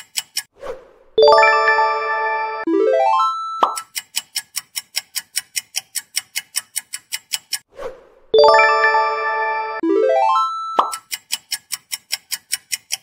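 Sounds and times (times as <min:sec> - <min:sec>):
clock ticking: 0:00.0 - 0:00.5, 0:03.6 - 0:07.7, 0:10.8 - 0:13.0
swoosh: 0:00.6 - 0:01.2, 0:07.7 - 0:08.4
bright ringing chime: 0:01.2 - 0:03.7, 0:08.4 - 0:10.9.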